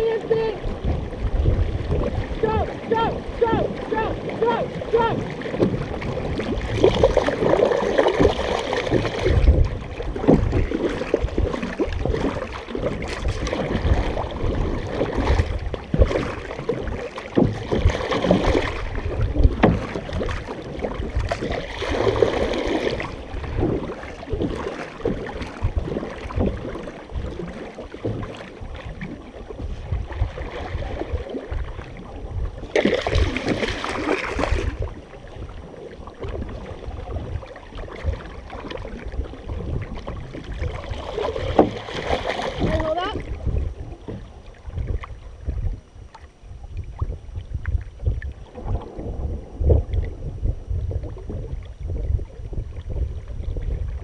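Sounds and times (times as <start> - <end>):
paddle strokes in water: 0.0 - 54.0
rushing water: 0.0 - 54.0
water splashing against canoe: 0.0 - 54.0.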